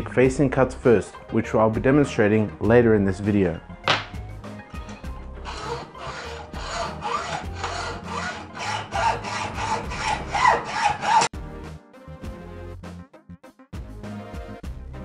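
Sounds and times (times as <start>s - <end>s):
hand saw cutting metal rod: 4.9s - 11.3s.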